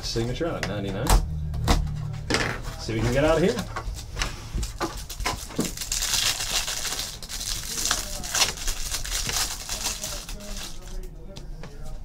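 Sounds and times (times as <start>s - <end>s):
plastic wrapping crinkling: 3.4s - 11.1s.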